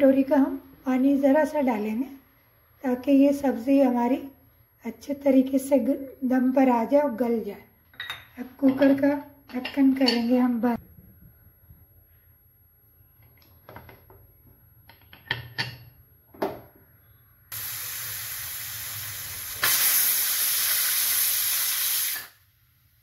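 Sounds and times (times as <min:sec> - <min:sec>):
pressure cooker steam hissing: 0:17.5 - 0:22.4.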